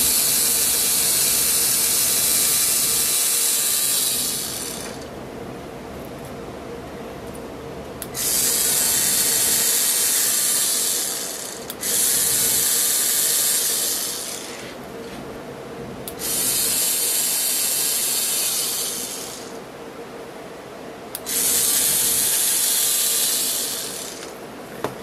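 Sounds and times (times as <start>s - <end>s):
pen motor whirring: 0.0s - 5.1s, 8.1s - 14.8s, 16.1s - 19.6s, 21.2s - 24.4s
faint steady hum: 0.0s - 25.0s.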